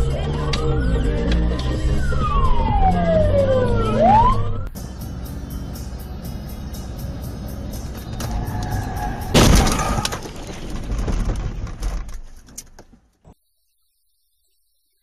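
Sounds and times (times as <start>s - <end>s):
road noise inside car: 4.0s - 12.8s
loud car crash: 9.2s - 12.2s.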